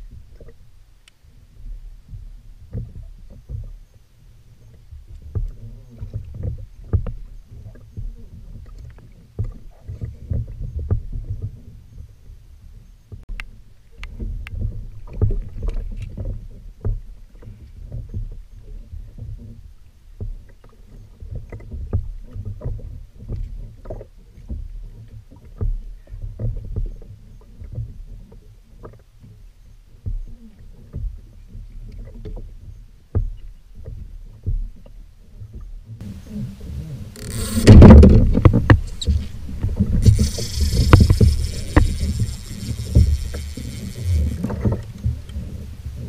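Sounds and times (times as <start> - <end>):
low steady rumble: 29.3 - 46.0
fishing reel spinning: 37.2 - 37.8, 40.0 - 44.9.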